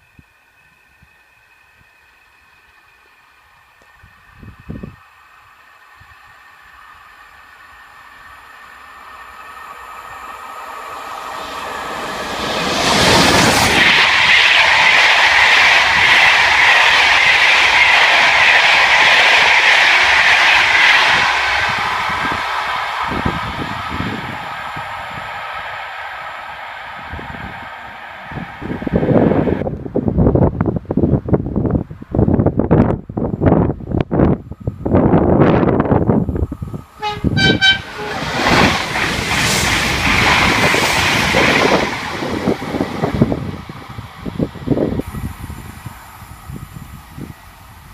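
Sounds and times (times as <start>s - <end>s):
train wheels hissing on rails: 0.0s - 29.7s, 33.4s - 47.9s
electric locomotive passing: 0.0s - 47.9s
wind buffeting microphone: 3.9s - 5.0s, 10.0s - 47.9s
train horn toots: 37.0s - 38.6s.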